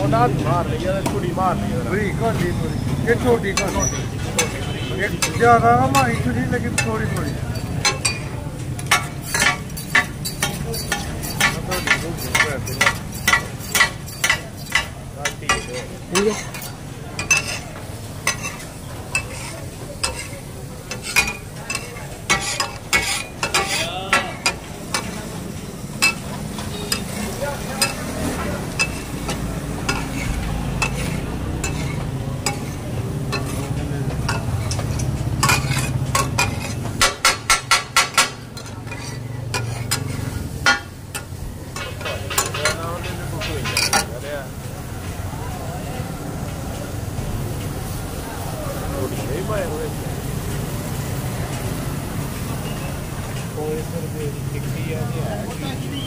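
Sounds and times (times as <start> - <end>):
food sizzling: 0.0 - 56.0
metal spatulas clattering on griddle: 2.3 - 44.3.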